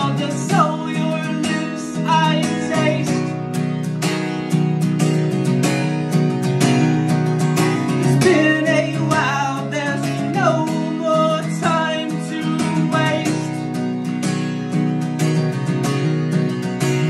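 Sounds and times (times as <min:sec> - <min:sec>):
person singing: 0:00.0 - 0:03.4, 0:08.0 - 0:13.8
acoustic guitar strumming: 0:00.0 - 0:17.0.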